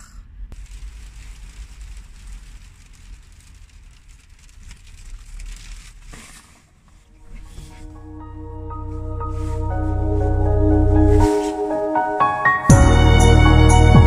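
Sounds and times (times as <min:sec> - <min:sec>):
low steady rumble: 0:00.0 - 0:11.4
rain pattering on van roof: 0:00.5 - 0:07.2
clothing rustling: 0:08.8 - 0:11.7.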